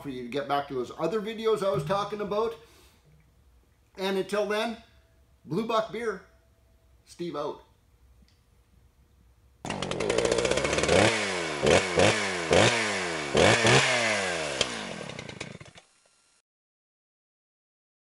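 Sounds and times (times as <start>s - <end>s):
two-stroke chainsaw engine revving: 9.6s - 16.4s.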